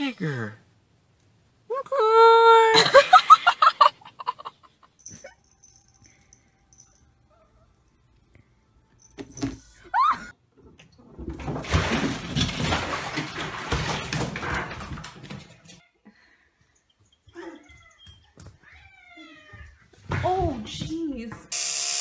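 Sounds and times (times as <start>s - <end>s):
cats splashing in bathtub water: 10.8s - 15.8s.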